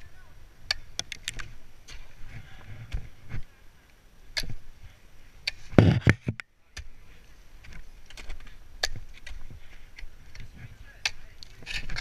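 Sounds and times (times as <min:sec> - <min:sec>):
ice axes striking ice: 0:04.3 - 0:04.7, 0:07.6 - 0:12.0.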